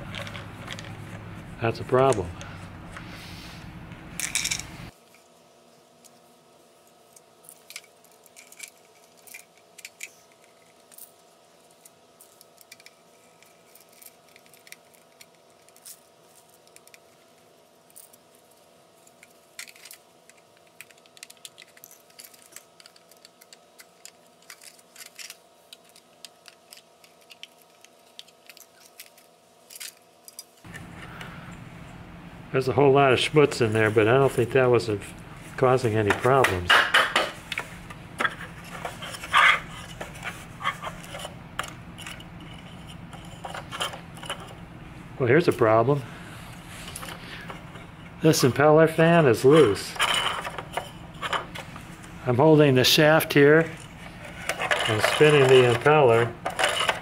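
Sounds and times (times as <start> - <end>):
loose screws and housing handled: 17.9 - 30.9, 35.9 - 44.6, 49.4 - 51.8, 53.3 - 57.0.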